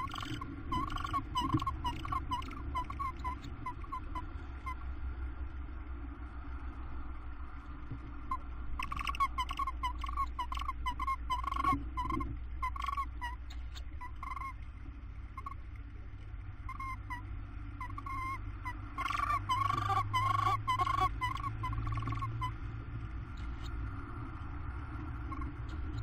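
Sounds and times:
owls calling in short high notes: 0:00.0 - 0:04.8, 0:08.8 - 0:14.6, 0:16.7 - 0:22.6
steady low hum: 0:00.0 - 0:26.0.

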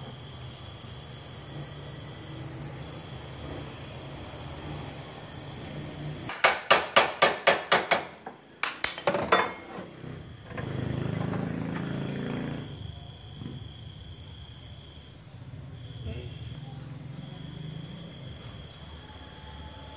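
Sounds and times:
hammer tapping on steel panel: 0:06.3 - 0:09.2.

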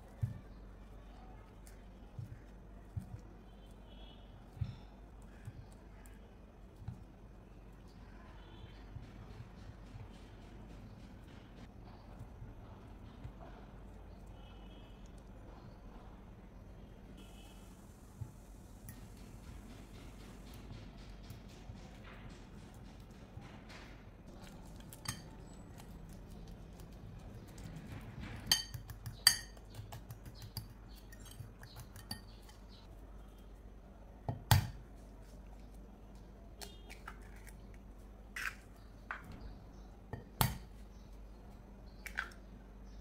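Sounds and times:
fork mashing bananas: 0:18.8 - 0:41.2
fork clinking against glass: 0:25.0 - 0:25.3.

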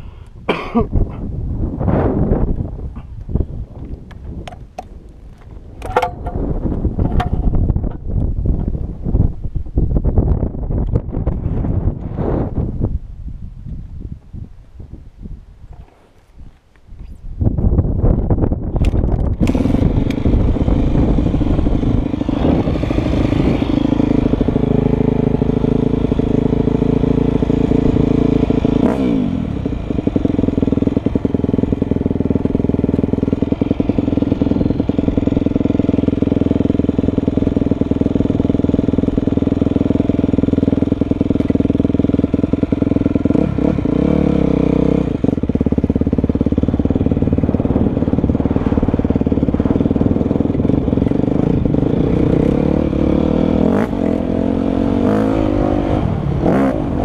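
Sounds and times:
motocross engine revving: 0:19.4 - 0:57.0.

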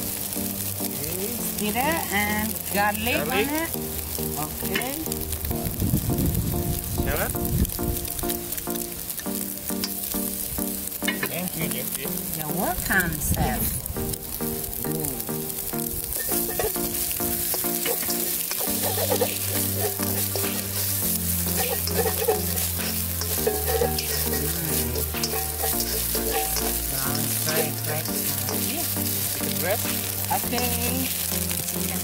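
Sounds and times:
background music low held notes: 0:00.0 - 0:32.0
food sizzling in hot oil: 0:00.0 - 0:32.0
spatula scraping wok: 0:16.1 - 0:32.0.

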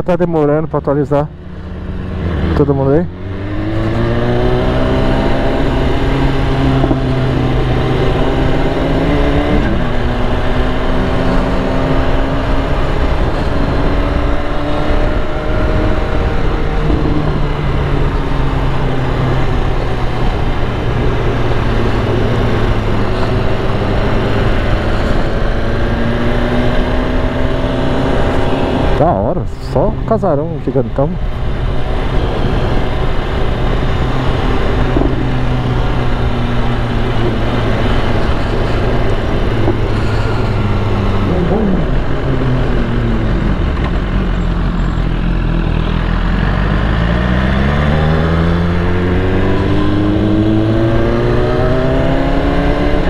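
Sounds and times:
motorcycle engine running: 0:01.2 - 0:53.0
wind noise on helmet: 0:31.3 - 0:45.3.

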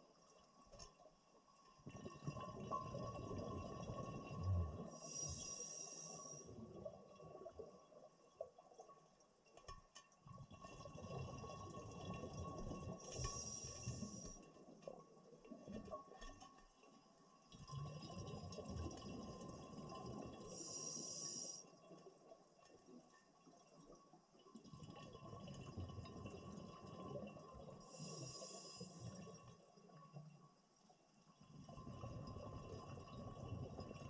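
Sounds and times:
diver breathing through regulator: 0:20.5 - 0:21.6, 0:27.9 - 0:29.2.

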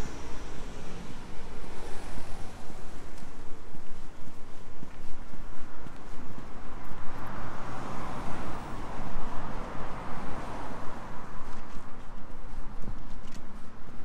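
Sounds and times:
car passing by: 0:00.0 - 0:04.1, 0:05.8 - 0:13.7.

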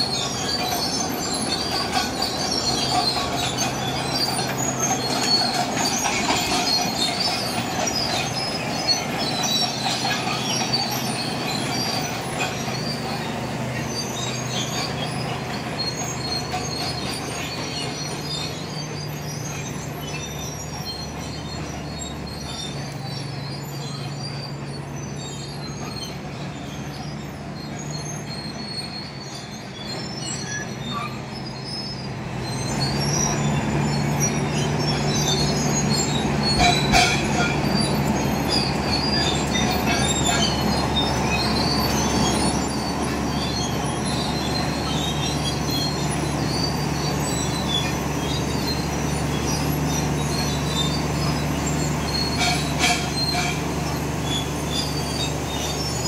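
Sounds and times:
bulldozer diesel engine: 0:00.0 - 0:56.0
steel tracks squealing and clattering: 0:00.0 - 0:56.0
sharp metal clanks: 0:34.6 - 0:42.6.

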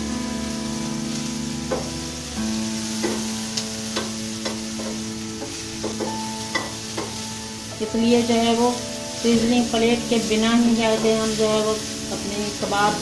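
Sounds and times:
vegetables sizzling in frying pan: 0:00.0 - 0:13.0
spatula tapping and scraping pan: 0:03.0 - 0:03.3, 0:03.9 - 0:07.2.

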